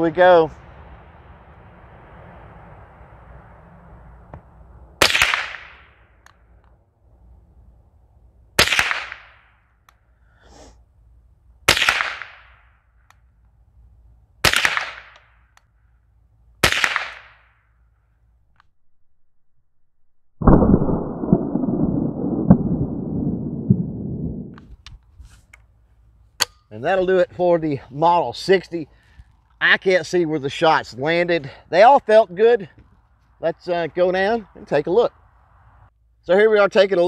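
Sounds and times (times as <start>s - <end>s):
rifle shots: 5.0s - 5.9s, 8.6s - 9.4s, 11.7s - 12.6s, 14.4s - 15.3s, 16.6s - 17.4s
slowed-down gunshot rumble: 20.4s - 24.6s.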